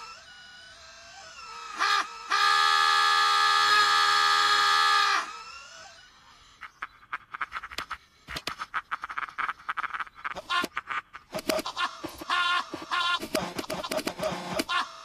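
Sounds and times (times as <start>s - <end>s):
loud harsh scream: 1.6s - 5.5s
fast clicks and short hits: 10.6s - 14.7s.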